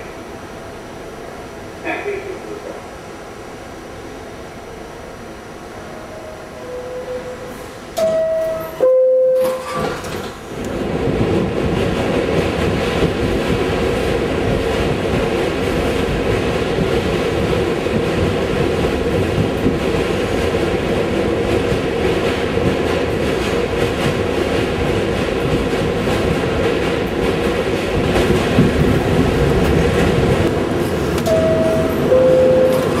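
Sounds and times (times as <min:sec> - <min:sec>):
subway train rumble and rattle: 0:00.0 - 0:33.0
two-note door chime: 0:08.0 - 0:09.7, 0:31.3 - 0:33.0.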